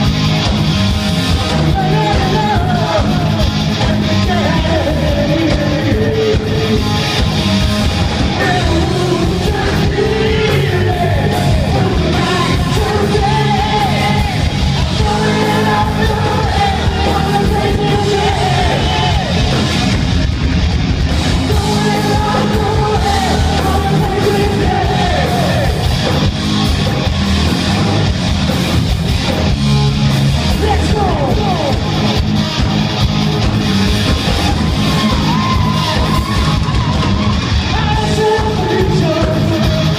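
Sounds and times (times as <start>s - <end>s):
rock band playing loudly: 0.0s - 39.9s
man singing: 1.5s - 7.0s, 8.4s - 19.5s, 21.5s - 25.9s, 30.5s - 31.8s, 37.6s - 39.9s.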